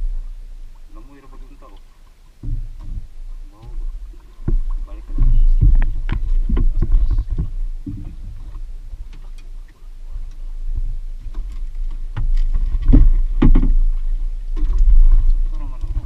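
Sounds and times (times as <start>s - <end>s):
wind on microphone: 0.0s - 1.5s, 2.3s - 16.0s
water against boat: 0.0s - 16.0s
knocks on boat hull: 2.4s - 3.8s, 4.4s - 8.4s, 12.2s - 13.9s.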